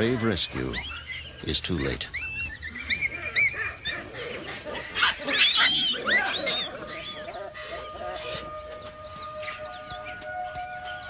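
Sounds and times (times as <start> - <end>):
baboons screaming: 0.0 - 11.0.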